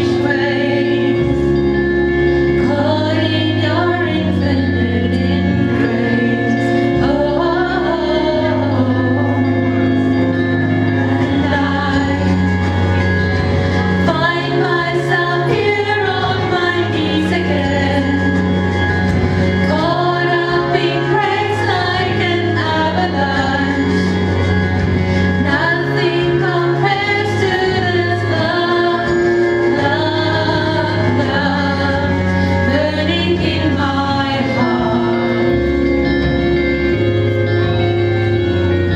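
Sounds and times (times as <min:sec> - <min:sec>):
held chord accompaniment: 0:00.0 - 0:38.9
low bass notes: 0:00.0 - 0:38.9
women singing together: 0:14.0 - 0:18.4, 0:19.6 - 0:24.2, 0:25.4 - 0:35.5.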